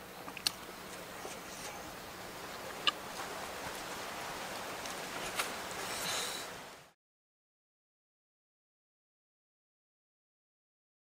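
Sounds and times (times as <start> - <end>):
outdoor background hiss: 0.0 - 7.0.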